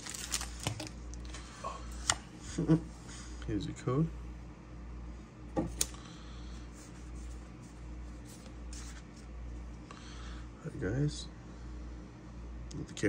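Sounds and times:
trading cards handling noises: 0.0 - 2.3, 6.8 - 9.8
low room hum: 0.0 - 13.0.

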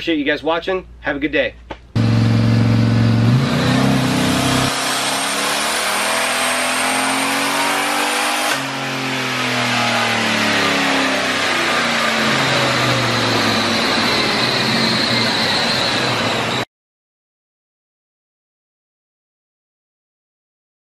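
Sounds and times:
engine revving at full throttle: 2.0 - 16.6.

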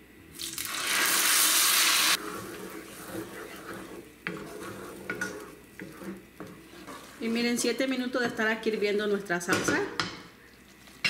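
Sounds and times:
sauce sizzling in a pan: 0.4 - 7.3
wooden spoon stirring sauce: 2.2 - 9.6.

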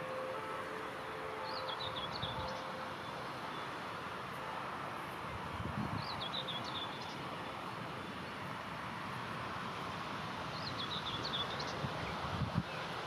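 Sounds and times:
outdoor background hiss: 0.0 - 13.0
songbird twittering: 1.4 - 2.8, 6.0 - 7.2, 10.5 - 12.8.

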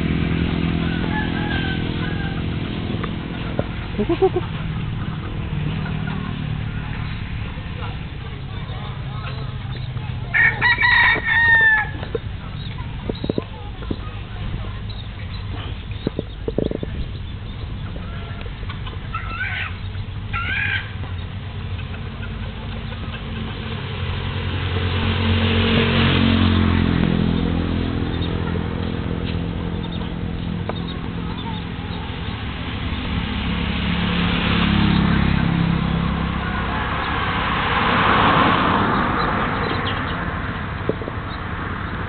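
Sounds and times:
vehicles passing on a road: 0.0 - 42.0
chicken calling: 3.9 - 4.6, 17.8 - 21.2.

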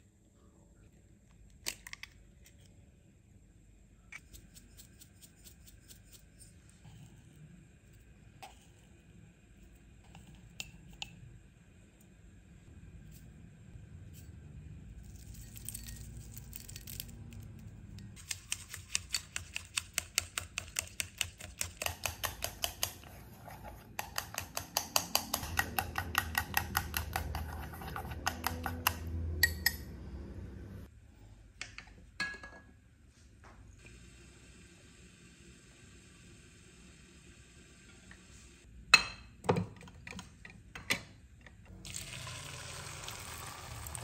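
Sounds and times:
chopsticks clicking against bowl: 24.0 - 29.8.

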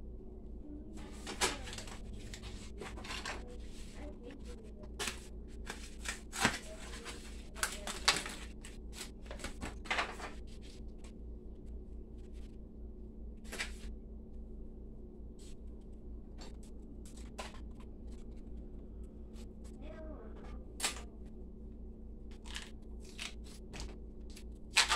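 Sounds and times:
steady low hum: 0.0 - 24.9
plastic wrapping crinkling and tearing: 5.0 - 10.4, 22.3 - 24.9.

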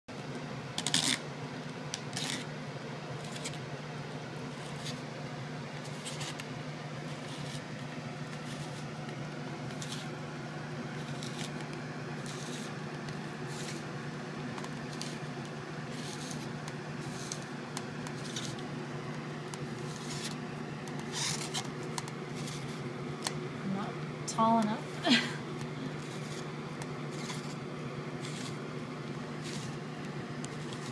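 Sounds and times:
steady low hum: 0.1 - 30.9
spiralizer scraping cuts: 7.1 - 9.0, 9.6 - 10.2, 10.9 - 13.9, 14.6 - 18.7, 19.6 - 21.7, 25.9 - 27.6, 28.2 - 28.6, 29.2 - 30.9.

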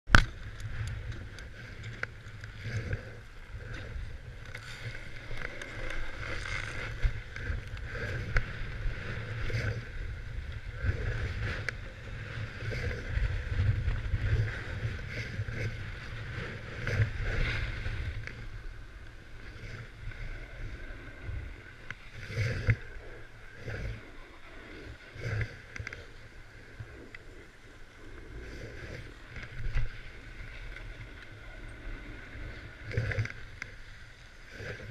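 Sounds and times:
wind buffeting microphone: 0.1 - 33.7
skis scraping icy snow: 3.9 - 27.1.

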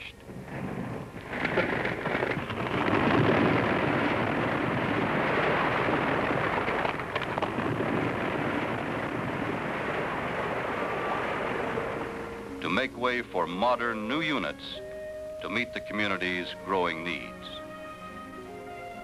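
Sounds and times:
falling masonry rumbling crash: 0.4 - 12.8.

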